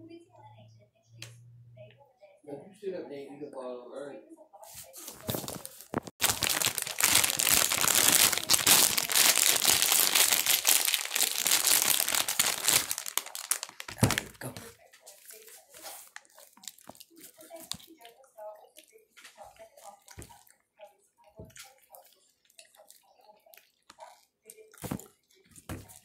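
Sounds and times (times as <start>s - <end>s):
plastic chip bag crinkling: 5.0s - 14.6s, 15.3s - 18.0s, 24.0s - 26.0s.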